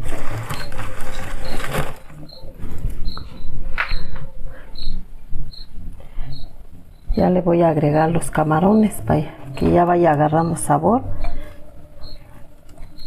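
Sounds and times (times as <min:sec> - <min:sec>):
rustling noise: 0:00.0 - 0:04.3.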